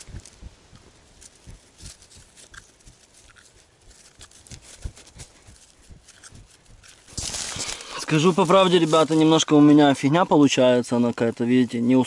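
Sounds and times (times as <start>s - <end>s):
wooden sticks clicking: 0.0s - 7.8s
rustle: 0.0s - 12.0s.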